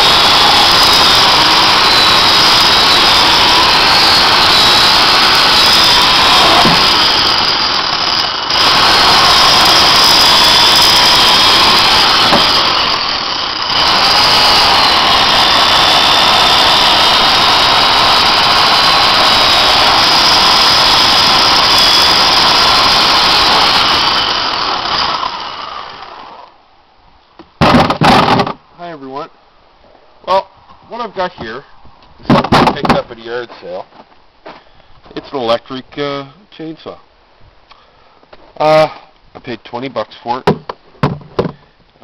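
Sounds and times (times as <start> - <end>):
electric chainsaw cutting log: 0.0 - 26.6, 27.6 - 28.6, 32.3 - 33.1.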